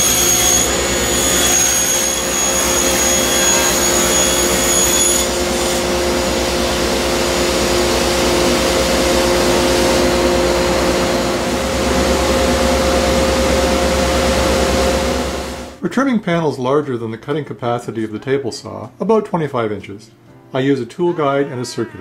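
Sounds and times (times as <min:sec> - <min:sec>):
saw blade whine: 0:00.0 - 0:15.8
table saw machine hum: 0:00.0 - 0:15.8
dust collector air rushing: 0:05.4 - 0:15.8.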